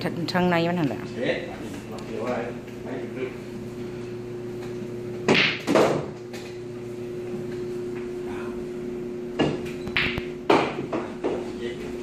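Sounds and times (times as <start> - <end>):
steady hum: 0.0 - 12.0
pool balls clacking: 4.6 - 6.6, 9.3 - 11.6.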